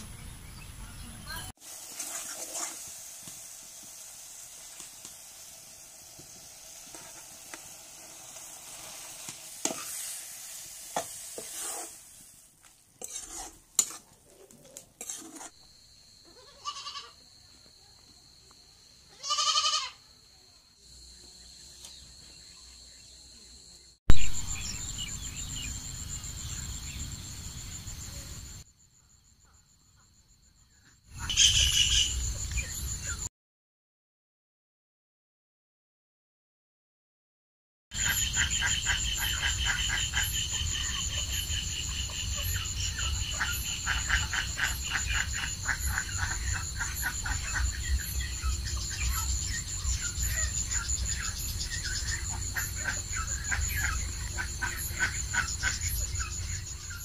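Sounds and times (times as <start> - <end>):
curry sizzling in a pan: 1.6 - 15.6
spoon stirring and scraping: 1.9 - 2.9, 8.4 - 15.6
high-pitched insect calls: 15.6 - 33.3, 37.9 - 57.0
goat bleating: 16.3 - 17.2, 19.2 - 20.0.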